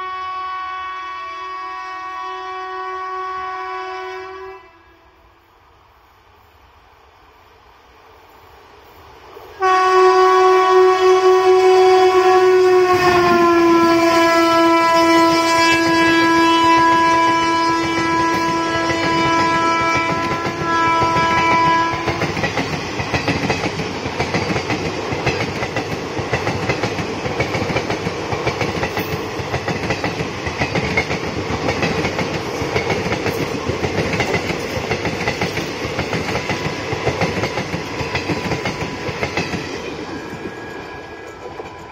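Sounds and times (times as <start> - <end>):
locomotive horn: 0.0 - 5.2, 9.6 - 22.4
train coaches clattering past: 8.2 - 41.9.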